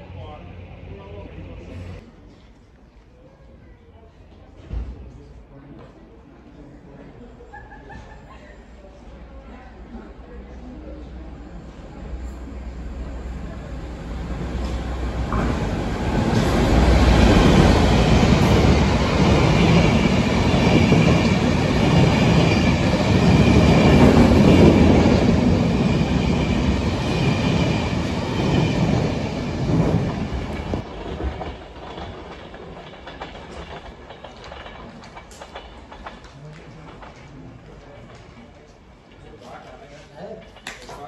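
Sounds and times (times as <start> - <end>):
passenger train passing: 0.0 - 2.0, 8.9 - 39.7.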